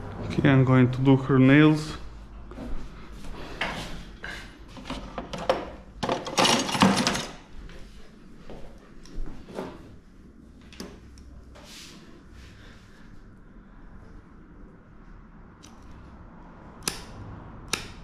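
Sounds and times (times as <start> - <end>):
tools knocking and clicking: 4.8 - 7.4.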